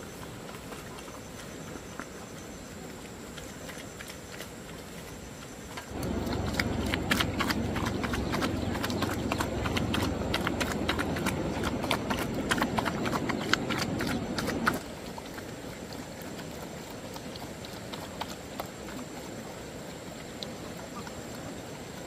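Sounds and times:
low rumble: 0:05.9 - 0:14.8.

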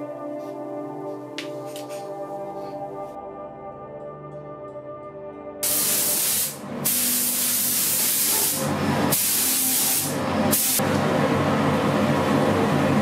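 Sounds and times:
spray gun hissing: 0:05.6 - 0:10.8.

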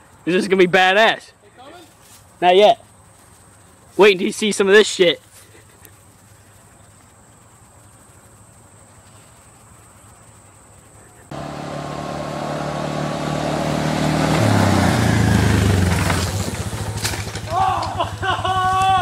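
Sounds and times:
high insect hum: 0:00.0 - 0:12.8
atv engine approaching: 0:02.7 - 0:19.0.

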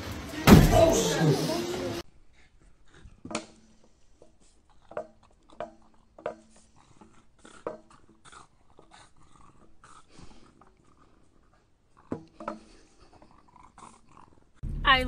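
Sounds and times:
small dog grunting and whimpering: 0:04.6 - 0:14.6.

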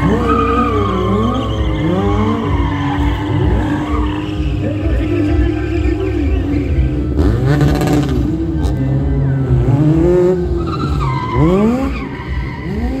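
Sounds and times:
tyre squeal: 0:00.0 - 0:05.7, 0:10.5 - 0:13.0
motorcycle engine revving: 0:00.0 - 0:13.0.

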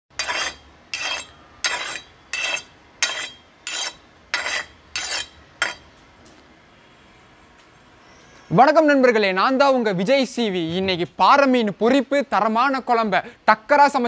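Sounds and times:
knife scraping on sharpening stone: 0:00.2 - 0:05.9.

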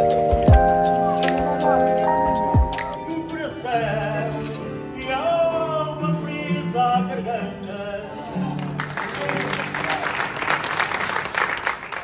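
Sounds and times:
guitar accompaniment: 0:00.0 - 0:10.4
man singing: 0:02.8 - 0:08.5.

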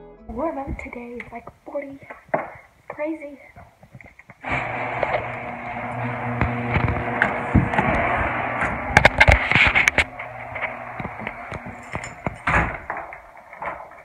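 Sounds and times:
garage door motor hum: 0:04.4 - 0:14.0.

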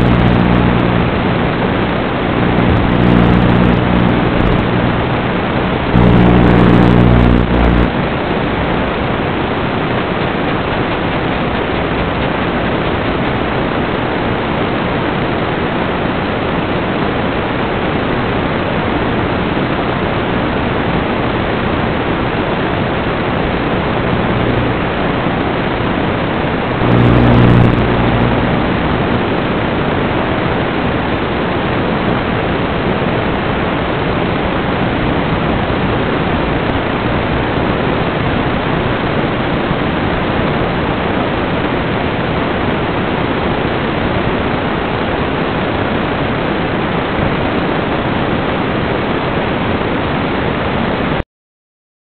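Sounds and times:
low buzz: 0:00.0 - 0:13.6, 0:20.2 - 0:30.0
static hiss: 0:00.0 - 0:51.2.

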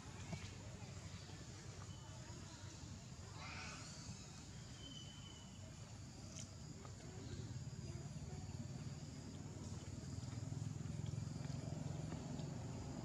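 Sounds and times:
high insect hum: 0:00.0 - 0:13.0
faint ticks: 0:06.3 - 0:13.0.

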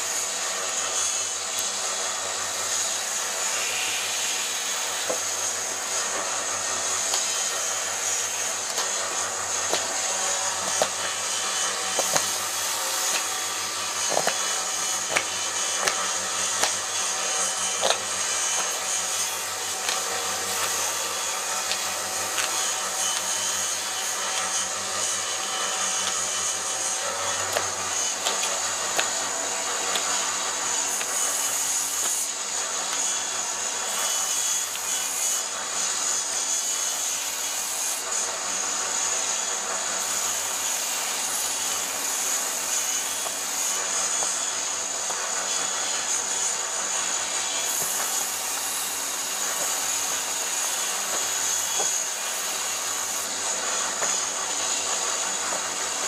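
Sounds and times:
electric bench sander running: 0:00.0 - 0:56.0
knife clicks cutting wood: 0:13.0 - 0:13.3, 0:14.1 - 0:14.4, 0:15.1 - 0:16.0, 0:16.6 - 0:16.8, 0:17.8 - 0:18.0.

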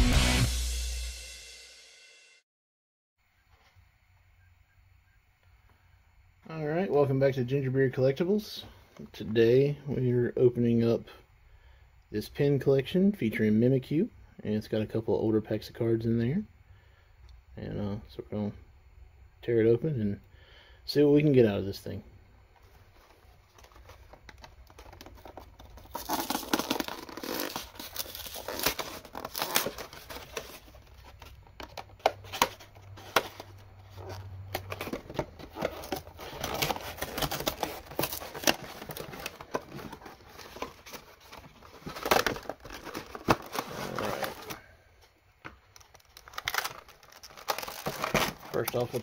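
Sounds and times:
plastic packaging crinkling: 0:23.0 - 0:44.6, 0:45.6 - 0:49.0
cardboard tearing: 0:24.7 - 0:44.6, 0:45.9 - 0:49.0.

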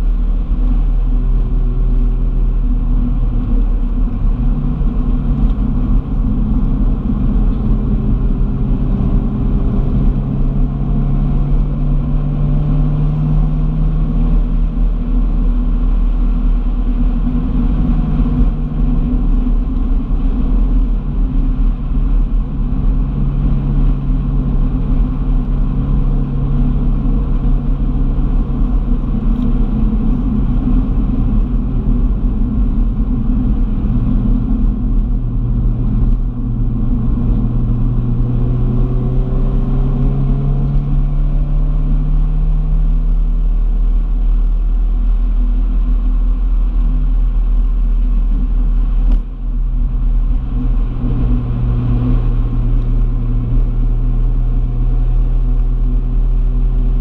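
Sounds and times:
car engine hum: 0:00.0 - 0:57.0
road rumble: 0:00.0 - 0:57.0.

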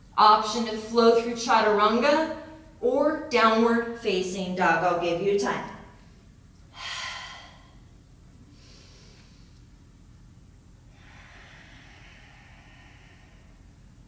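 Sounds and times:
woman breathing: 0:06.1 - 0:09.9, 0:10.8 - 0:14.0.

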